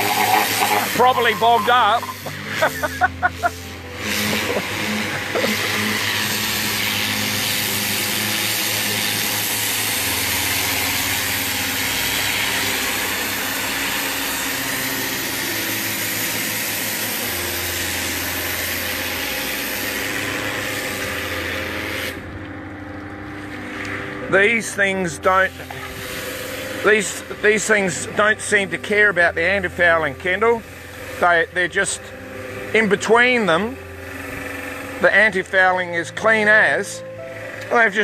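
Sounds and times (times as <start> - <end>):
pressure washer water jet hissing: 0.0 - 22.3, 23.2 - 38.0
low engine hum: 22.1 - 28.8.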